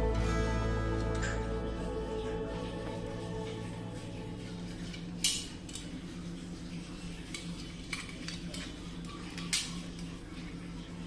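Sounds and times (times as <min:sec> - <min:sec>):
steady low hum: 0:00.0 - 0:07.7.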